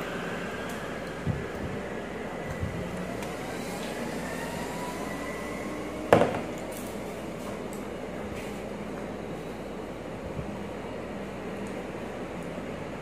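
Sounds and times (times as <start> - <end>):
faint rising whine: 0.0 - 13.0
steady background hum: 0.0 - 13.0.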